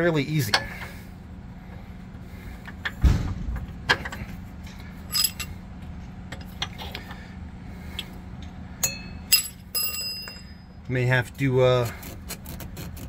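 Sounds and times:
heavy thump: 0:02.9 - 0:03.7
metal clinks and knocks: 0:05.1 - 0:05.6, 0:08.8 - 0:10.7.

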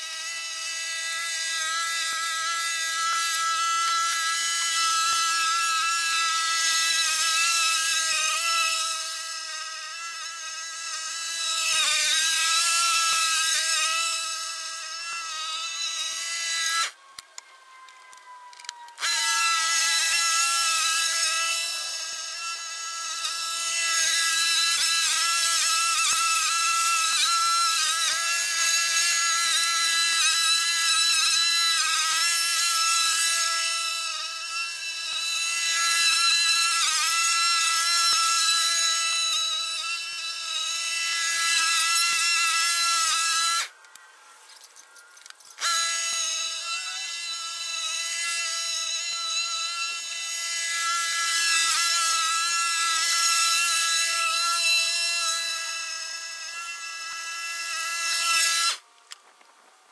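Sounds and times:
sped-up lawn mower buzz: 0:00.0 - 0:17.1.

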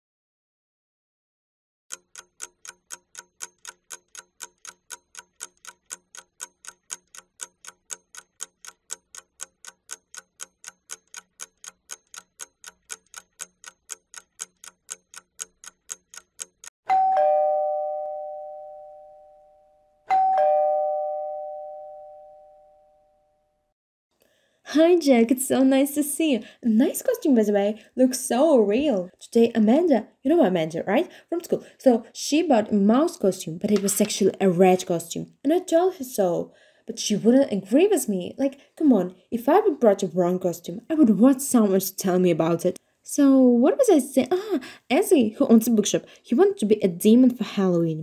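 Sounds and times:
clock ticking quickly: 0:01.9 - 0:16.7
doorbell chime: 0:16.9 - 0:23.5.

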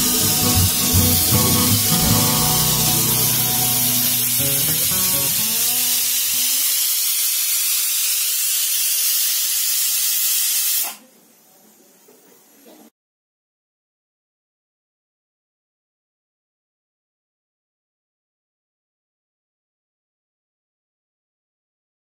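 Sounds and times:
background music: 0:00.0 - 0:06.2
pressure cooker hissing: 0:00.0 - 0:11.0.

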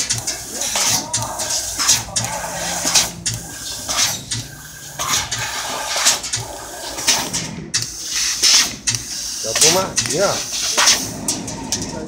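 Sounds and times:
low machine hum: 0:00.0 - 0:07.8
laser cutter hissing bursts: 0:00.0 - 0:11.2.

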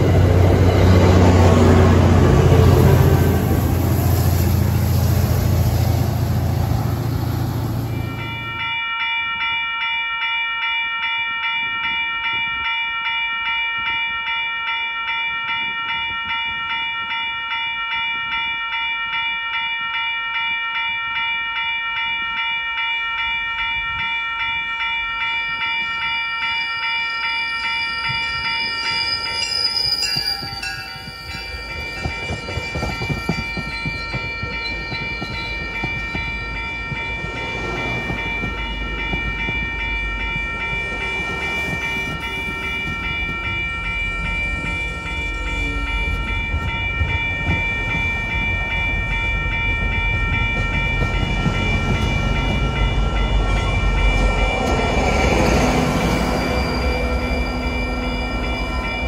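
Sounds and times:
diesel train rumble: 0:00.0 - 0:08.6, 0:27.9 - 0:59.0
high wavering tone: 0:00.0 - 0:10.2, 0:22.3 - 0:59.0
railroad crossing bell ringing: 0:00.0 - 0:59.0.

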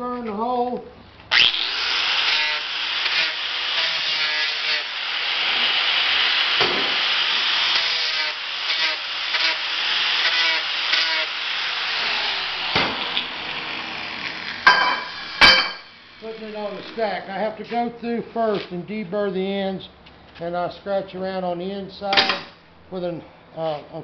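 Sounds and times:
angle grinder grinding steel: 0:01.3 - 0:17.4.

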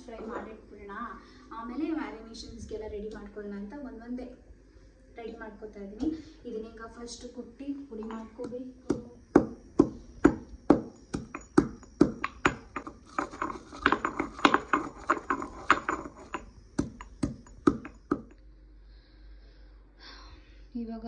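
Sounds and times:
stone pestle pounding in mortar: 0:08.0 - 0:18.4.

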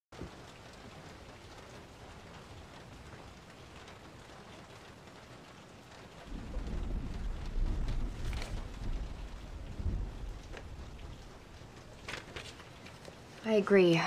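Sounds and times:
steady rain: 0:00.2 - 0:14.0
thunder rumbling: 0:06.2 - 0:13.4.

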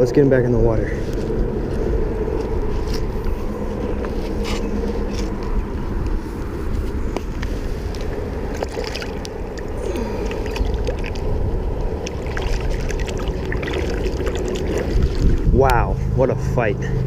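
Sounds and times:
wind rumble on microphone: 0:00.0 - 0:17.0
light water splashing: 0:08.0 - 0:15.8.

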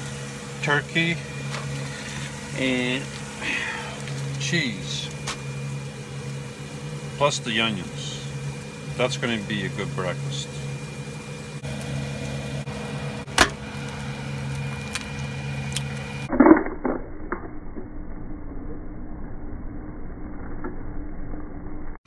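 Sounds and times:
steady low hum: 0:00.0 - 0:22.0
eggs crackling in frying pan: 0:10.8 - 0:16.3.

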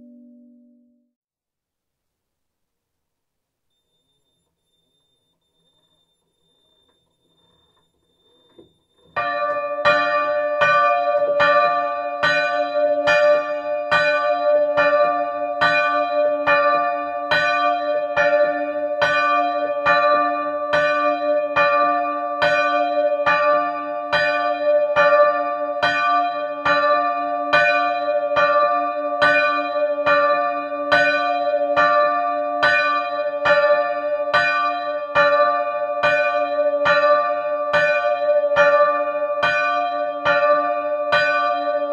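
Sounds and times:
church bells ringing: 0:00.0 - 0:00.8, 0:09.2 - 0:41.9.

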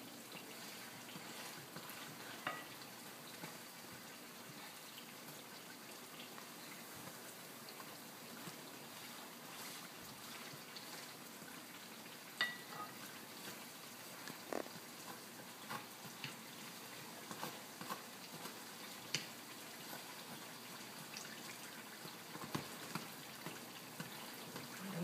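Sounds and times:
food sizzling in a skillet: 0:00.0 - 0:25.0
fork clinking against pan: 0:02.4 - 0:02.7.

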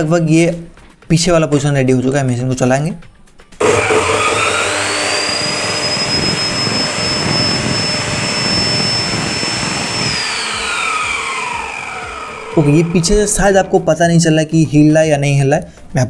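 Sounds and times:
saw motor whining: 0:03.6 - 0:14.1
motor spinning down: 0:03.6 - 0:14.2.

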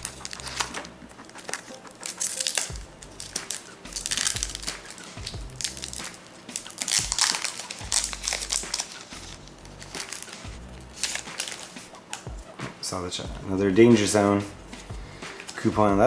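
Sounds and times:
foil wrapper crinkling: 0:00.0 - 0:12.3
foil wrapper tearing: 0:00.0 - 0:12.3.

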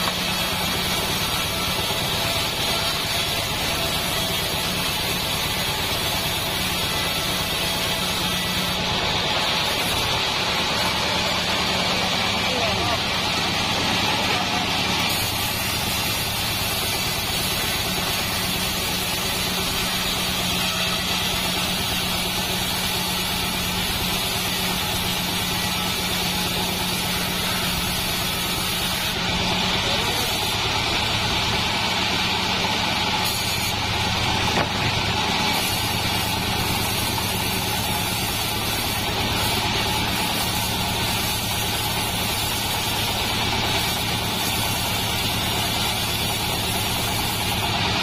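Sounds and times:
band blade cutting wood: 0:00.0 - 0:47.9
sawmill engine hum: 0:00.0 - 0:48.0.

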